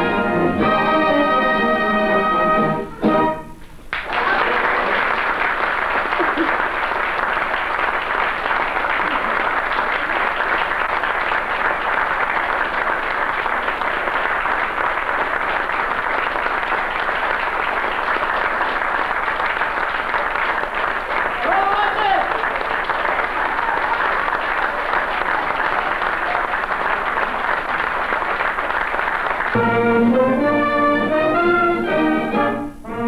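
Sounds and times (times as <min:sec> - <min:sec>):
audience applauding: 0:03.9 - 0:29.8.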